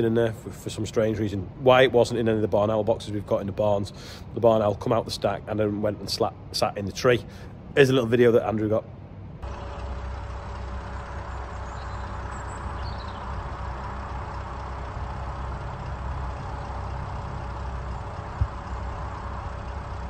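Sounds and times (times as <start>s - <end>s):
engine idling: 9.3s - 20.0s.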